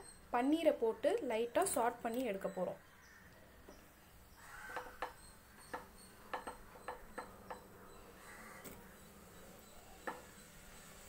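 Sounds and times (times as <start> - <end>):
faint sizzle: 8.0 - 11.0.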